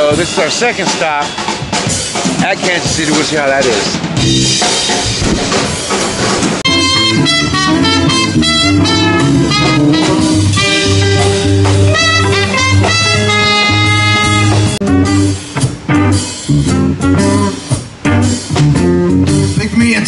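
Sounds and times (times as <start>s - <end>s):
live blues-rock band: 0.0s - 20.0s
horn holding notes: 6.6s - 17.7s.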